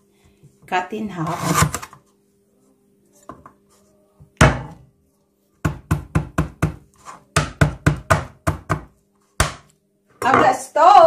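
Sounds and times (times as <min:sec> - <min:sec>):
stone pounding on wooden board: 0:05.6 - 0:09.7.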